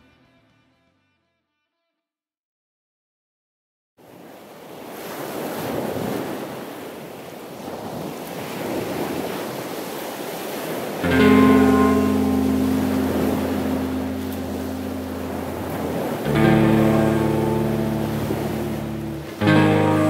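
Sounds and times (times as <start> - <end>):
rushing surf-like noise: 8.5 - 20.0
held guitar chord: 11.0 - 20.0.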